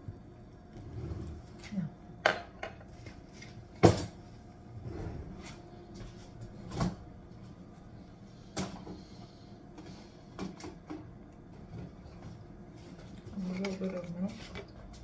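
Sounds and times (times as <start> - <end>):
knocks and clunks in kitchen: 0.0 - 3.0, 3.6 - 7.6, 8.4 - 13.0.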